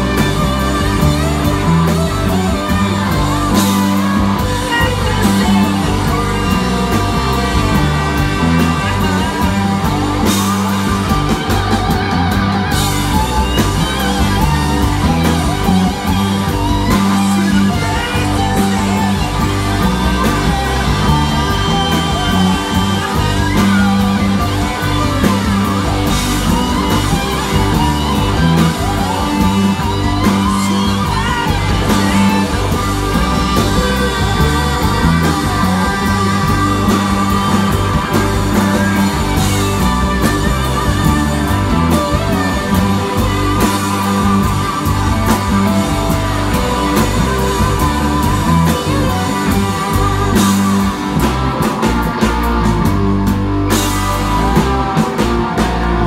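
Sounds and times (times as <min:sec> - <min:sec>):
person singing: 0:00.0 - 0:52.8
live rock band playing: 0:00.0 - 0:56.0.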